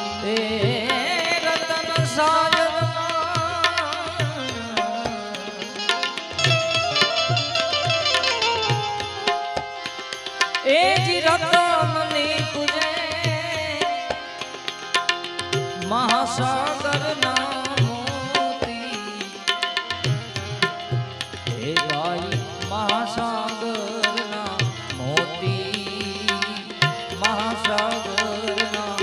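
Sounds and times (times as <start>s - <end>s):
person singing: 0.0s - 7.4s, 15.8s - 19.6s, 21.5s - 29.0s
tabla beat: 0.0s - 29.0s
keyed banjo melody: 4.6s - 12.1s.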